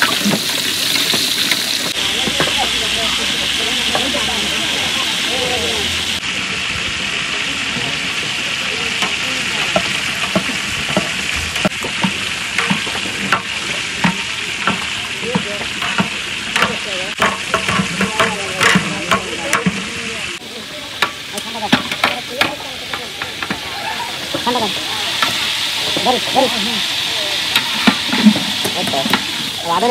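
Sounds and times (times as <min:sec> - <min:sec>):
food sizzling in a pan: 0:00.0 - 0:29.9
utensil scraping and knocking pan: 0:09.7 - 0:19.9, 0:27.5 - 0:29.4.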